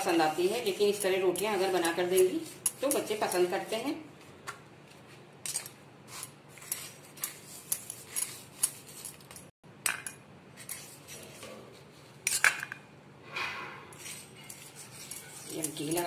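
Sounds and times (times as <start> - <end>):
spoon clinking and scraping on dishes: 5.4 - 11.1, 13.9 - 16.0.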